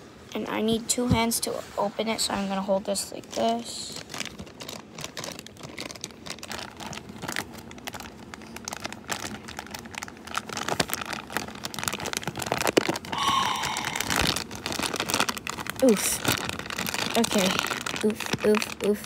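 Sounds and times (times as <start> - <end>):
plastic bag crinkling: 2.9 - 19.0.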